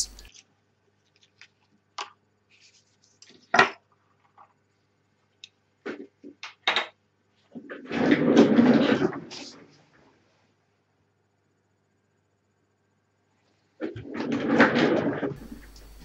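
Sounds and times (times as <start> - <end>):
keyboard handling noise: 13.8 - 16.0.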